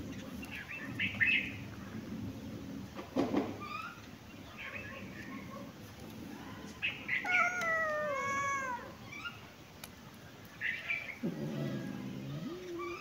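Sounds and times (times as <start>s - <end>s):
cat meowing: 7.1s - 9.0s.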